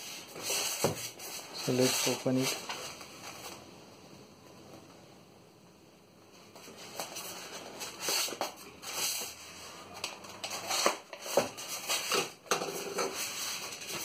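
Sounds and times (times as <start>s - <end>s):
plastic wrap and tape rustling: 0.0s - 3.7s, 6.6s - 14.0s.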